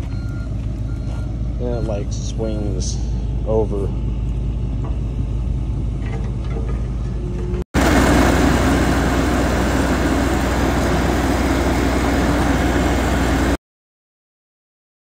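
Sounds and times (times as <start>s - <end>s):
diesel engine running: 0.0s - 13.6s
engine hiss: 7.8s - 13.6s.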